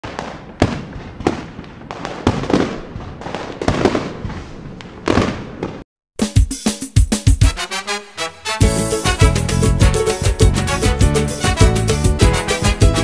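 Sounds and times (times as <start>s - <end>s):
sharp echoing bangs: 0.0s - 5.8s.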